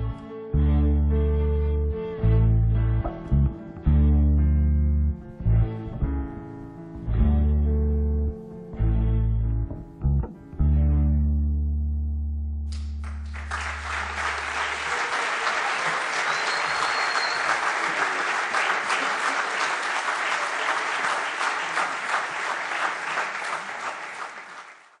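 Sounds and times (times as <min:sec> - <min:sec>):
orchestra low chord: 0:00.0 - 0:14.3
audience applauding: 0:12.7 - 0:25.0.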